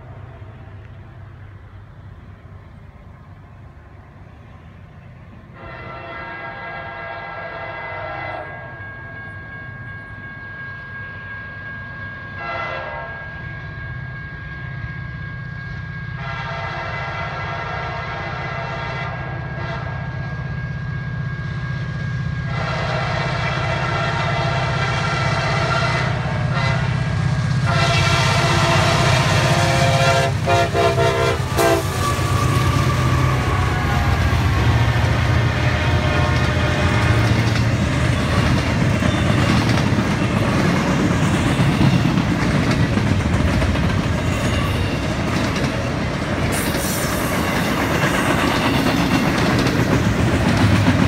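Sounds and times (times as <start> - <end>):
diesel locomotive rumble: 0.0 - 51.0
locomotive air horn blasts: 5.5 - 39.6.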